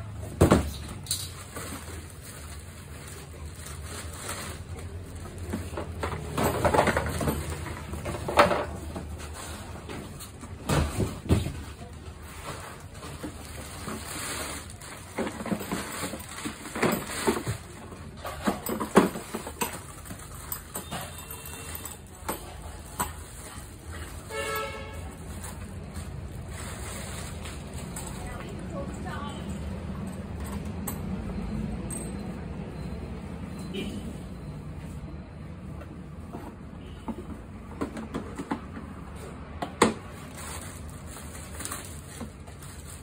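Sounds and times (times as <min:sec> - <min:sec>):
plastic bags crinkling: 0:01.0 - 0:07.7, 0:12.7 - 0:17.9, 0:18.6 - 0:28.6, 0:40.1 - 0:43.0.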